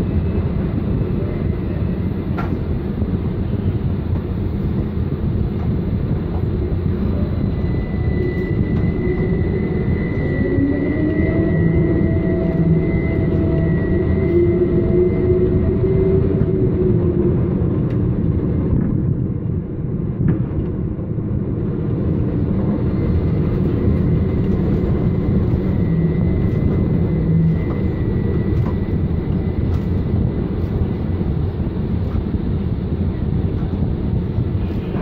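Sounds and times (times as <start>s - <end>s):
container crane rumble and drone: 0.0s - 35.0s
faint high whine: 6.5s - 17.3s, 22.4s - 33.4s.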